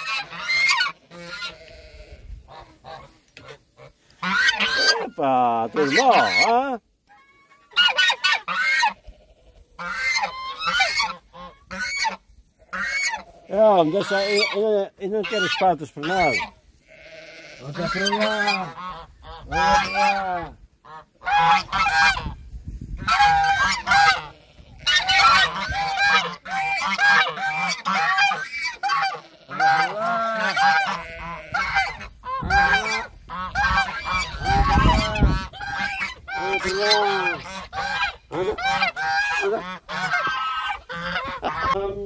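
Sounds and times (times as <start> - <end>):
geese honking: 0.0 - 22.4, 23.0 - 42.0.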